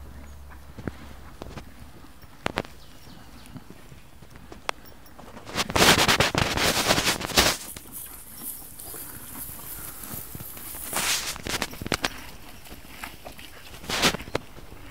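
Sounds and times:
hay crackling and rustling: 0:05.3 - 0:14.4.

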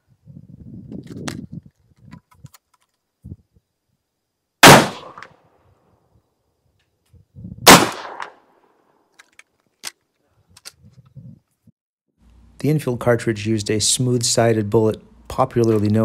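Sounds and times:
rifle shot: 0:04.6 - 0:05.4, 0:07.6 - 0:08.4.

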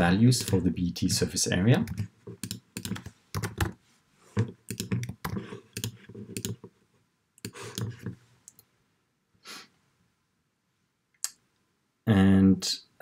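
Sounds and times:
typing on computer keyboard: 0:01.9 - 0:03.8, 0:04.7 - 0:06.7.

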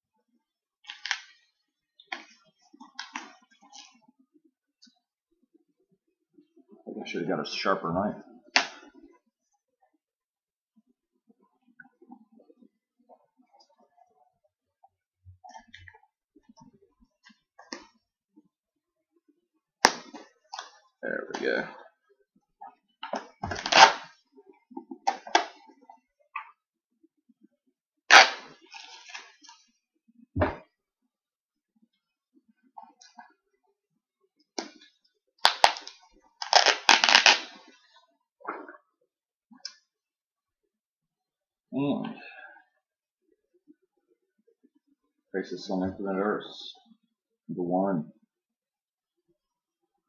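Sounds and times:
packing material rustling and crinkling: 0:35.4 - 0:37.8.

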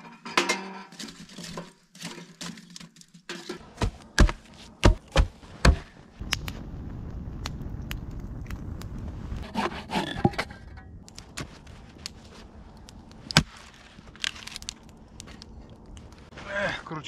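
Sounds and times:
wood scraping and creaking: 0:00.0 - 0:06.0, 0:08.5 - 0:16.6
axe splitting log: 0:03.6 - 0:05.9.

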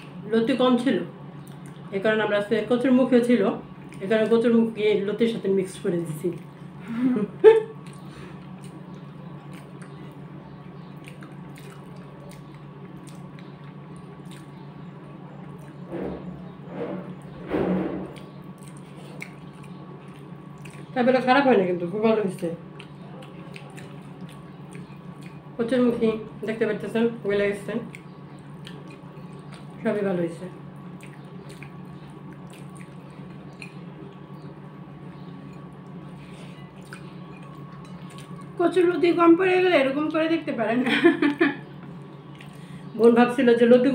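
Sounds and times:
steady low hum: 0:00.0 - 0:43.9
food squishing by hand: 0:03.6 - 0:05.3, 0:07.7 - 0:15.9, 0:18.1 - 0:21.4, 0:22.1 - 0:25.6, 0:27.5 - 0:30.0, 0:30.6 - 0:39.6, 0:41.8 - 0:43.2.

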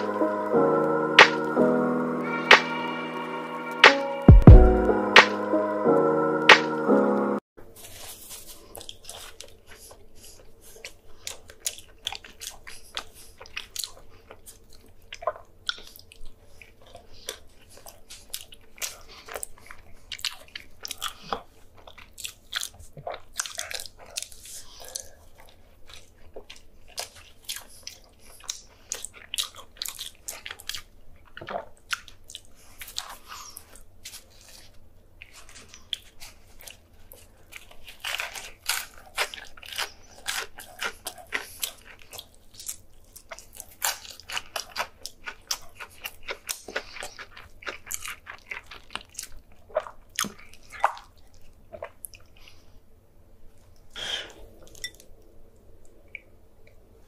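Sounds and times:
crackly mouth noises: 0:07.9 - 0:52.8, 0:53.5 - 0:57.0
man chewing crunchy food: 0:07.9 - 0:52.8.

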